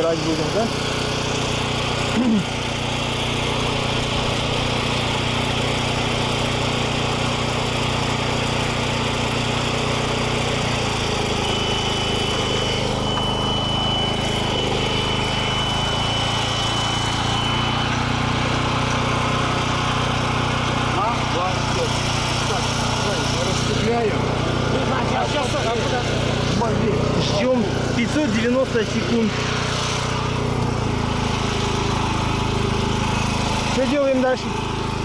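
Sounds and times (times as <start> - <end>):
petrol generator running: 0.0 - 35.0
thin high steady tone: 10.2 - 19.1.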